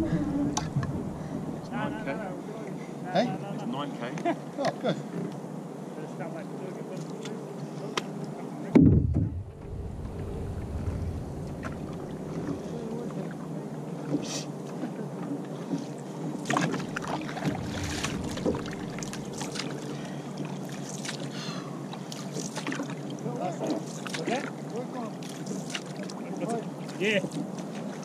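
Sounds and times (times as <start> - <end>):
water lapping along hull: 0.0 - 3.4, 6.1 - 28.0
loud low thump: 0.4 - 1.7, 8.8 - 12.6, 17.0 - 20.4
paddle strokes splashing: 14.0 - 28.0.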